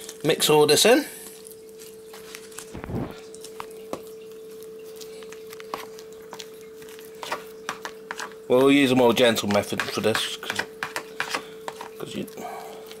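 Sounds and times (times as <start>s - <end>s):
spoon tapping plastic bowl: 7.2s - 8.8s, 9.4s - 11.9s.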